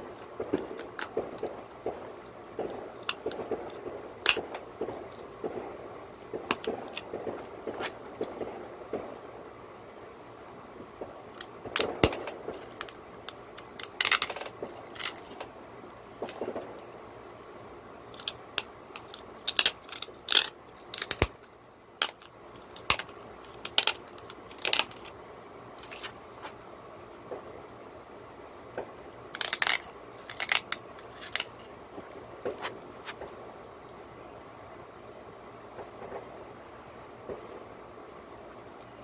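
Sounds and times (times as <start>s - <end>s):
stone knapping clicks and snaps: 18.2s - 25.1s, 29.4s - 31.6s.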